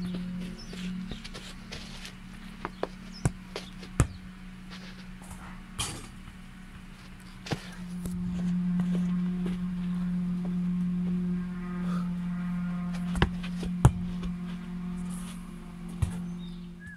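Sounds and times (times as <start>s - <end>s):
steady low hum: 0.0s - 16.9s
football being kicked: 2.7s - 4.2s.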